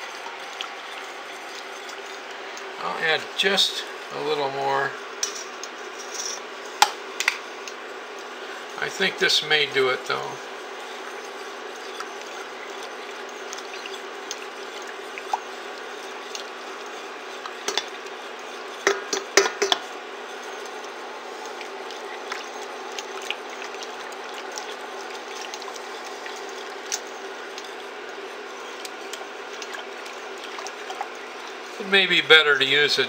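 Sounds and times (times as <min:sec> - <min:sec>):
steady hum: 0:00.0 - 0:33.0
stirrer scraping metal pan: 0:08.5 - 0:32.3.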